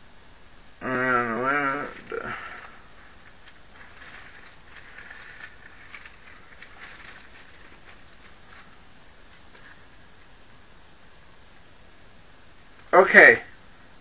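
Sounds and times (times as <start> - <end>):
book pages rustling: 1.7 - 10.0.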